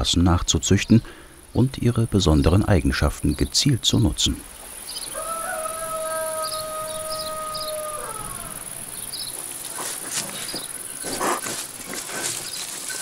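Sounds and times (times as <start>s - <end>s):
crickets chirping: 0.0s - 13.0s
piglet grunting and snuffling: 9.7s - 13.0s.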